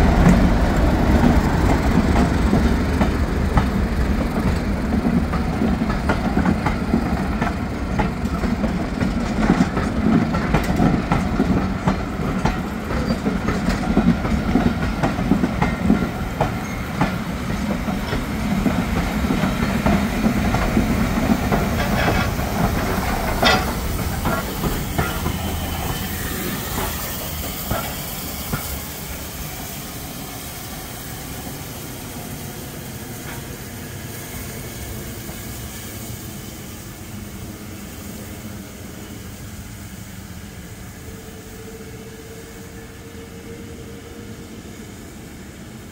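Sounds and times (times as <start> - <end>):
wheels clicking and knocking on rails: 0.0 - 29.3
steam hiss: 0.0 - 45.9
steam locomotive running past: 0.0 - 45.9.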